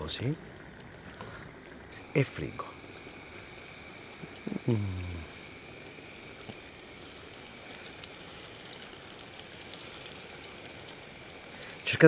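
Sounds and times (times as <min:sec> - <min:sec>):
food frying in hot oil: 0:00.0 - 0:12.0
man's brief vocal sound: 0:04.4 - 0:05.3.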